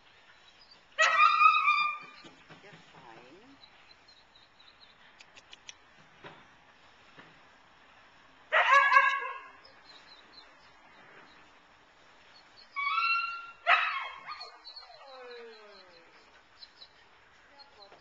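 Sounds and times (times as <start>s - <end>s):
dog barking: 8.5s - 9.6s
dog whining: 12.7s - 16.5s.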